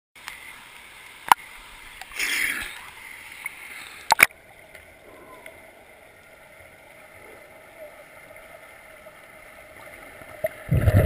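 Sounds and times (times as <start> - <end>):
pool water splashing: 0.2 - 11.0
muffled underwater sound: 4.1 - 6.2, 6.9 - 9.0.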